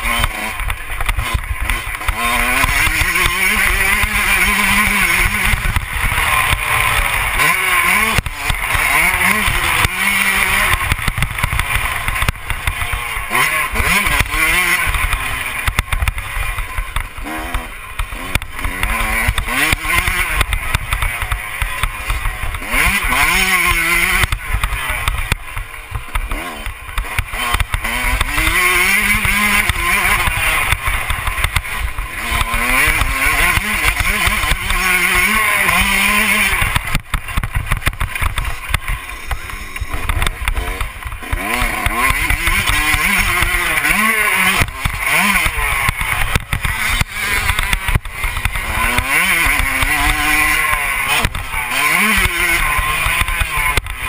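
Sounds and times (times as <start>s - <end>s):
dirt bike engine revving: 0.0s - 54.0s.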